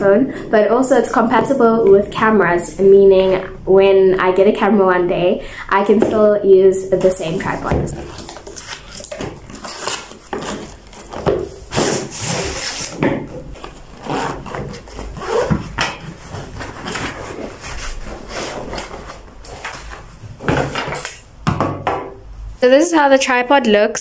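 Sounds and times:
cardboard packaging scraping and rustling: 0:07.0 - 0:21.2
cloth rubbing: 0:13.6 - 0:19.3.

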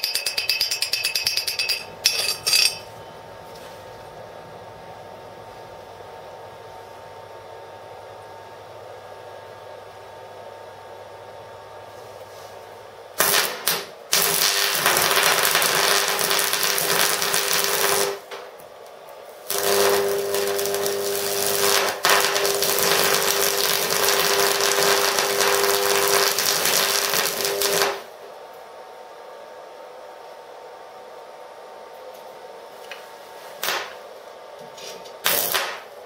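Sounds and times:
welding arc crackling: 0:13.2 - 0:18.3, 0:19.4 - 0:28.1, 0:33.6 - 0:34.0, 0:35.2 - 0:36.0
welder hum: 0:13.2 - 0:28.3, 0:35.0 - 0:36.0.

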